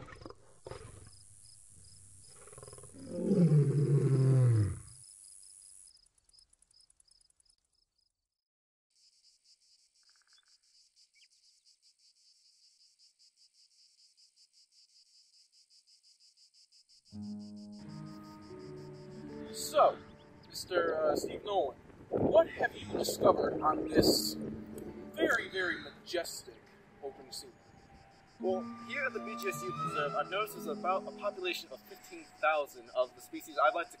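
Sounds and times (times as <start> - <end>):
crickets chirping: 0.0 - 8.1, 8.9 - 34.0
deep animal roar: 2.3 - 4.9.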